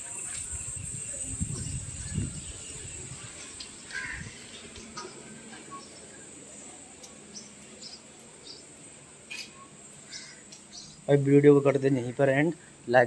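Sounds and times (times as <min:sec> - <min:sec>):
high-pitched insect drone: 0:00.0 - 0:03.3.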